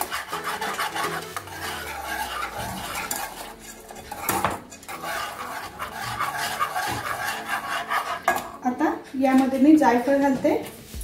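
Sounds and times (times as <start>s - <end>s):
whisk rattling against pan: 0.0s - 8.6s.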